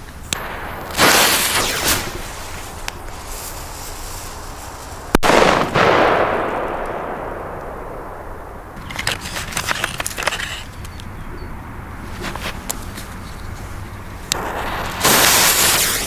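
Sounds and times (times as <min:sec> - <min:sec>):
firecracker bang echoing: 0:00.4 - 0:08.8, 0:14.4 - 0:16.0.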